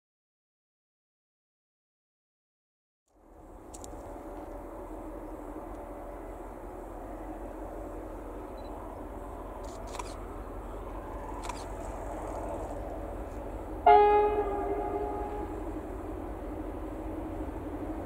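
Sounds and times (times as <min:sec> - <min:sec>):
train rumble: 0:03.1 - 0:18.0
locomotive horn two-note chord: 0:13.8 - 0:15.7.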